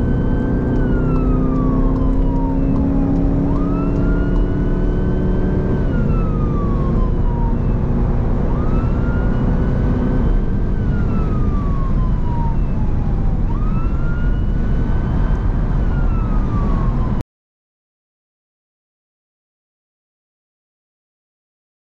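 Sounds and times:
road and engine noise: 0.0s - 17.2s
siren wailing: 0.0s - 17.2s.

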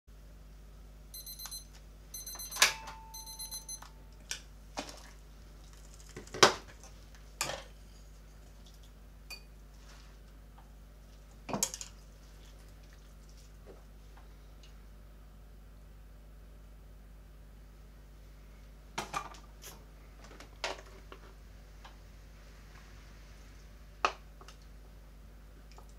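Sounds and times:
digital kitchen timer beeping: 1.1s - 4.0s.

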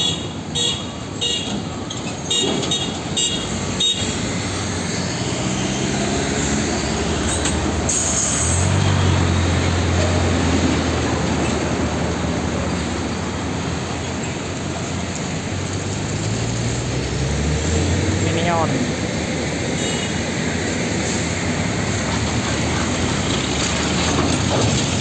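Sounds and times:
air hiss: 7.9s - 8.8s.

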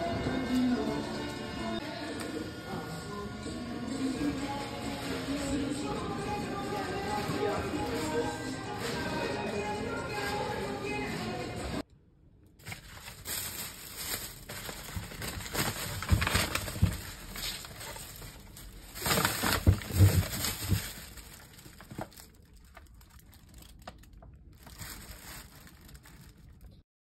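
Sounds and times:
plastic and paper bags rustling: 4.5s - 11.1s, 12.6s - 26.8s.

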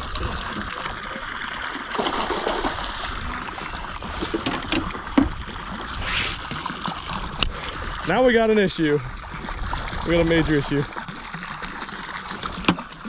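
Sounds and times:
water splashing and sloshing: 0.0s - 13.0s
fishing line slicing through water: 6.0s - 6.6s.

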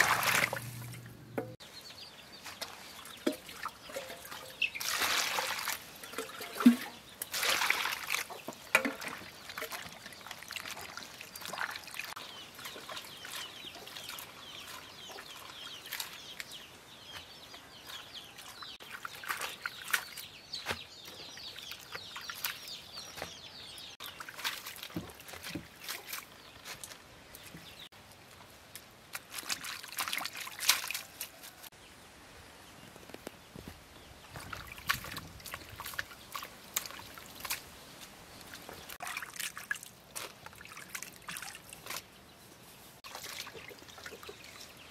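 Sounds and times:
water splashing in a basin: 0.0s - 1.6s, 2.5s - 16.5s, 18.4s - 22.7s, 24.0s - 27.0s, 29.1s - 31.4s, 34.4s - 37.7s, 38.4s - 42.1s, 43.0s - 44.9s
birds chirping: 0.0s - 28.6s
water dripping from leaves: 2.6s - 16.6s, 28.7s - 31.7s.

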